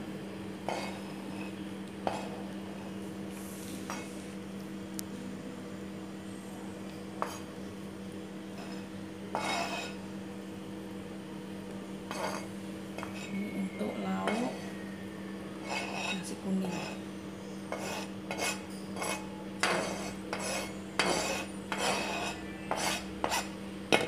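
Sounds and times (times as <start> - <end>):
steady low hum: 0.0 - 24.0
spoon scraping cutting board: 8.6 - 10.0, 12.1 - 13.4, 15.6 - 17.0, 17.7 - 23.6.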